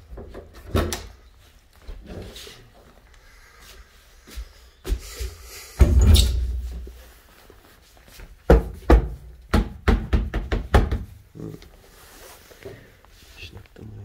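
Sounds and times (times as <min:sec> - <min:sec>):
knocking on wooden shelf: 0:08.5 - 0:11.2.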